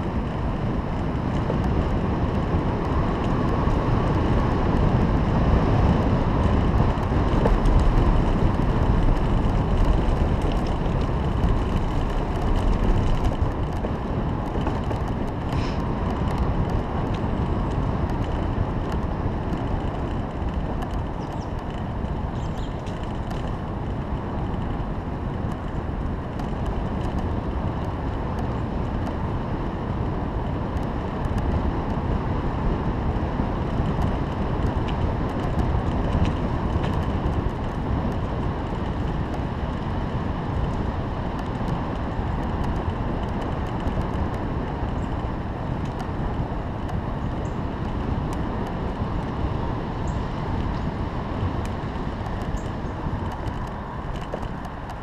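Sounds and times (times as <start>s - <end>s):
bicycle tyres rolling on asphalt: 0.0s - 55.0s
wind rushing over microphone: 0.0s - 55.0s.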